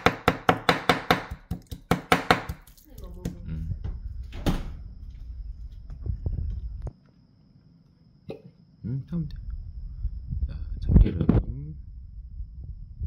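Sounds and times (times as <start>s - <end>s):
knife chopping on wooden board: 0.0s - 3.4s.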